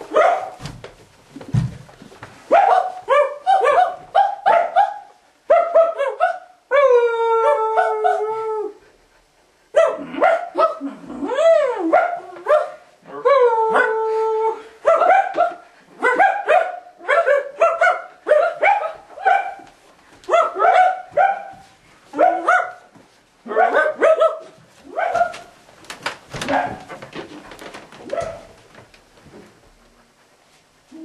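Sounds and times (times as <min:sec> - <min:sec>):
dog barking: 0:00.1 - 0:00.6, 0:02.5 - 0:06.6, 0:09.8 - 0:10.8, 0:11.9 - 0:12.8, 0:14.8 - 0:19.7, 0:20.3 - 0:21.6, 0:22.2 - 0:22.9, 0:23.5 - 0:25.5, 0:26.4 - 0:26.9, 0:28.1 - 0:28.5.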